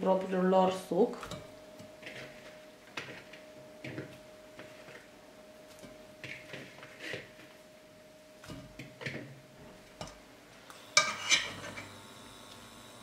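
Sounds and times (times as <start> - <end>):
faint steady tone: 1.2 - 11.1.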